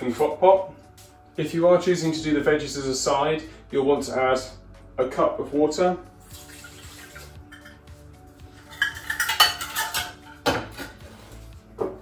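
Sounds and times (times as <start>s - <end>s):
water pouring into metal pot: 6.2s - 7.9s
metal dishes clinking and clattering: 8.6s - 11.2s.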